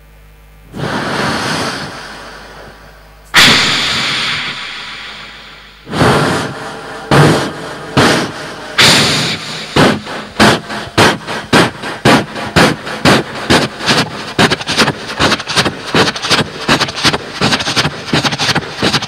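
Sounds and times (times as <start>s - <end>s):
man imitating train chugging: 5.9s - 19.0s.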